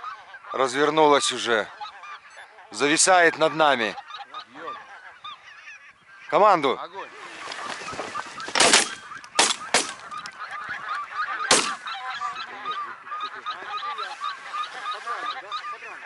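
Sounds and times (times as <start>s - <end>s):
geese honking: 0.0s - 16.0s
shotgun shots: 8.5s - 10.0s, 11.5s - 11.9s.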